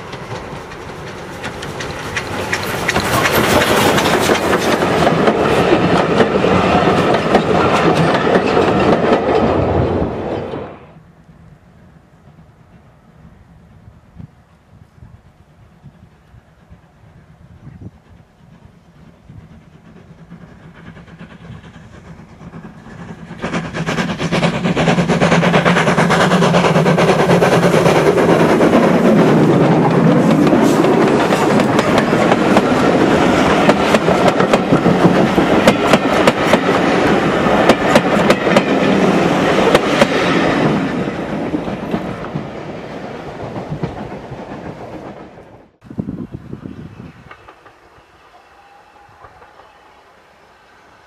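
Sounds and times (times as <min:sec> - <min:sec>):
train wheels clattering over rail joints: 0:00.0 - 0:10.7, 0:18.1 - 0:42.7, 0:47.2 - 0:47.9
steam locomotive passing: 0:00.0 - 0:51.0.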